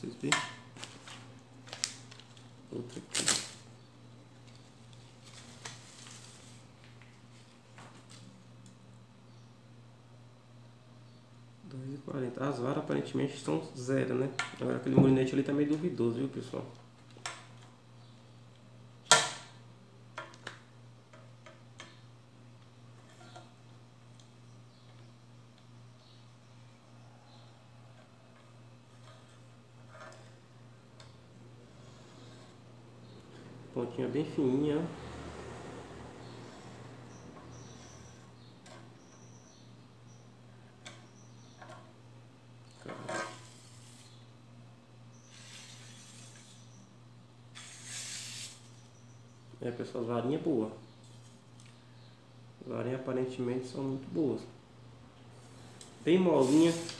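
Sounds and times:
fishing rod rustle: 56.4s - 56.9s.

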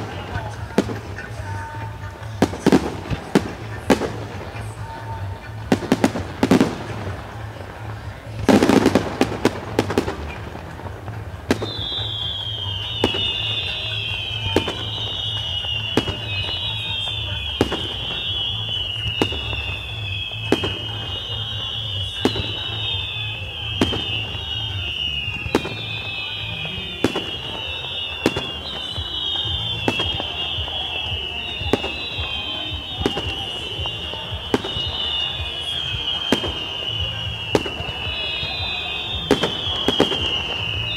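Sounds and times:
firework bangs: 0.0s - 40.9s
firework crackling bursts: 0.0s - 40.9s
high falling firework whistles: 0.0s - 40.9s.

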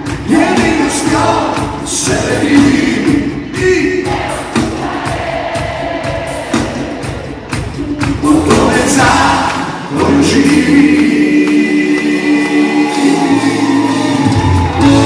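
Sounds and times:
crowd singing along: 0.0s - 15.0s
live band playing: 0.0s - 15.0s
steady beat: 0.0s - 15.0s.

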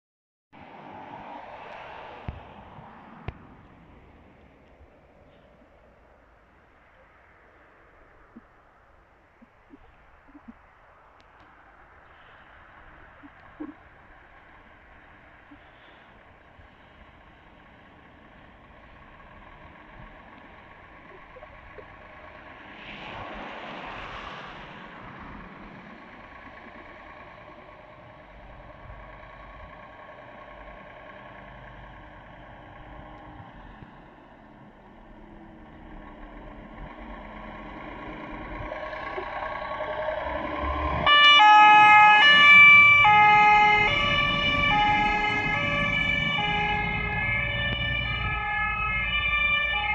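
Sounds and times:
fire engine engine: 0.6s - 49.9s
emergency siren alternating tones: 6.9s - 10.7s, 11.4s - 17.0s, 17.9s - 22.7s, 23.4s - 29.9s, 36.5s - 49.9s.

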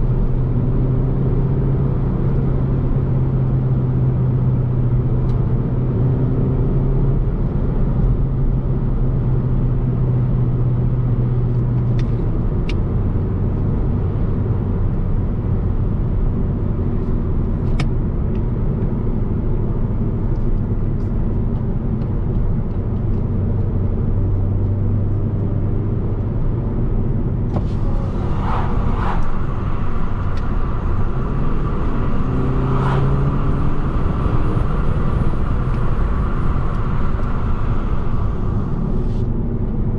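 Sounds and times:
car engine cruising: 0.0s - 39.9s
tyre and road noise: 11.3s - 39.9s.

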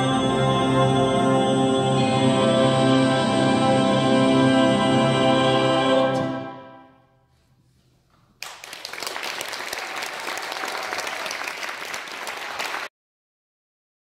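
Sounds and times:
audience applause: 8.4s - 12.9s.

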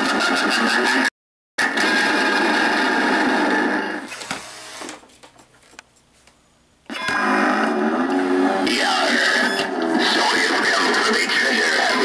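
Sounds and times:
sound clip through small speaker: 6.9s - 12.0s.

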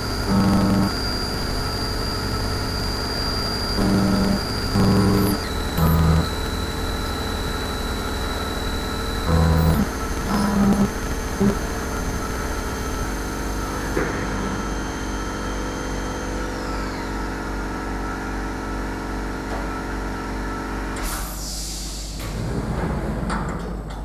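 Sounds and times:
milling machine hum and whine: 0.0s - 24.0s
high tone sliding down: 0.3s - 1.0s, 3.7s - 13.1s.

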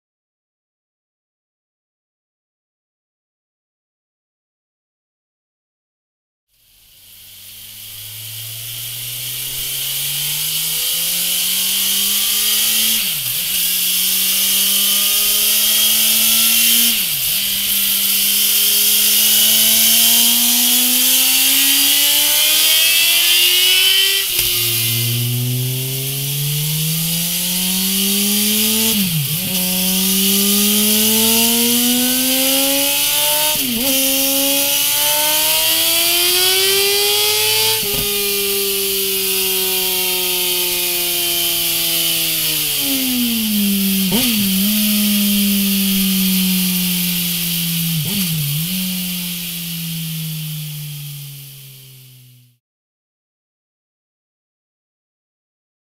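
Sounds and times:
steady high hiss: 6.6s - 42.8s, 43.6s - 52.2s
motorcycle engine accelerating: 6.6s - 52.6s.

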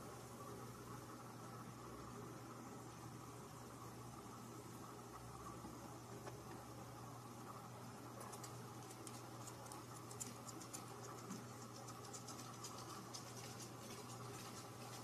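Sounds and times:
steady low hum: 0.0s - 15.0s
faint scratching and ticking: 7.5s - 15.0s.

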